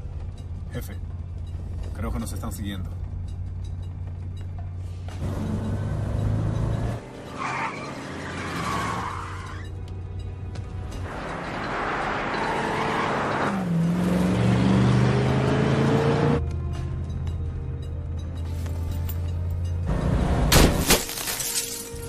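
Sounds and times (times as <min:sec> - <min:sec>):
car engines running hard: 0:00.0 - 0:18.2
tyres skidding: 0:00.2 - 0:17.4
engine revving: 0:05.1 - 0:09.1, 0:11.0 - 0:16.5.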